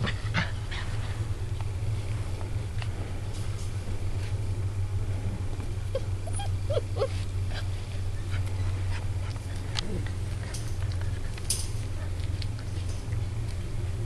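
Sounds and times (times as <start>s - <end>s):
steady low hum: 0.0s - 14.0s
puppies whimpering: 5.9s - 11.2s
light clicks and rustles: 7.1s - 14.0s.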